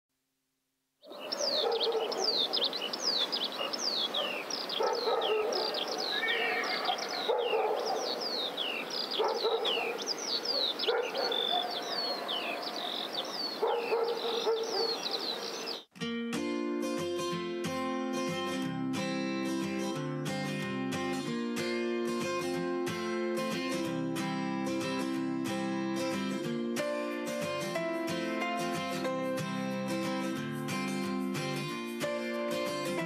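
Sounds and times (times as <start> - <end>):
birds chirping: 1.0 - 15.9
dog barking: 1.3 - 2.7, 3.6 - 6.1, 6.8 - 8.2, 9.2 - 12.8, 13.6 - 15.1.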